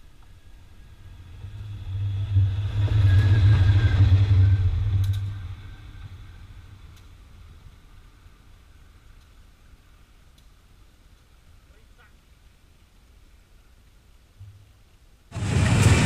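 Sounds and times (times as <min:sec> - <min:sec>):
diesel locomotive passing: 0:00.5 - 0:08.3, 0:15.3 - 0:16.0.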